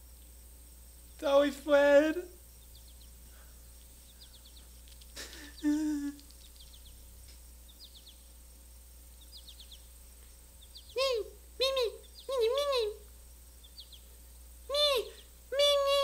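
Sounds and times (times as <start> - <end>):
faint bird chirps: 0.0 - 16.0
puppet voice humming: 5.2 - 6.2, 11.0 - 13.0, 14.7 - 16.0.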